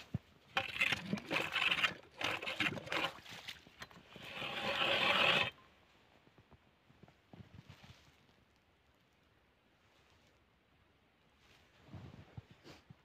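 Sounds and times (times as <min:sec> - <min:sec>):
ice auger grinding: 0:00.5 - 0:05.6
ice auger scraping ice: 0:00.5 - 0:05.6.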